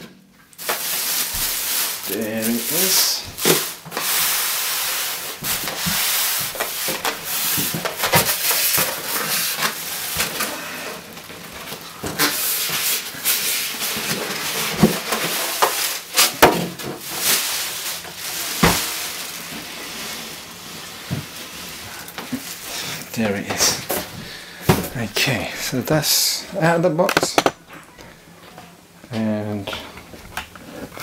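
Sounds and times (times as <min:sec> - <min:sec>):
plastic bag crinkling: 0:00.6 - 0:16.4, 0:17.0 - 0:24.1
knocks and thumps of handling: 0:27.1 - 0:27.6.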